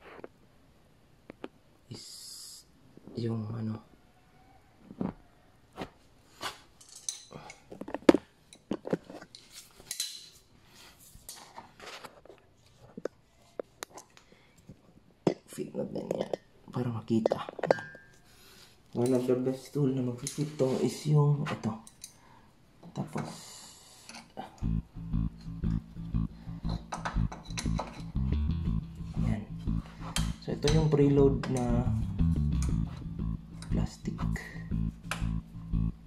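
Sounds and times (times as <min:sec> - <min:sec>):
hand tools clinking and clattering: 0:06.8 - 0:07.7
plucked bass guitar: 0:24.6 - 0:36.0.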